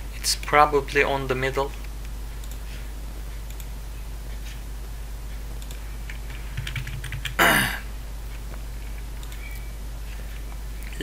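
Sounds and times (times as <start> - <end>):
low electrical hum: 0.0 - 11.0
keyboard and mouse clicks: 8.9 - 9.7.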